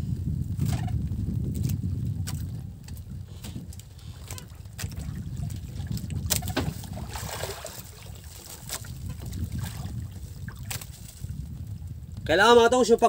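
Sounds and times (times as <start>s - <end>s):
wind rumble on microphone: 0.0s - 13.0s
water washing around boat: 1.6s - 11.7s.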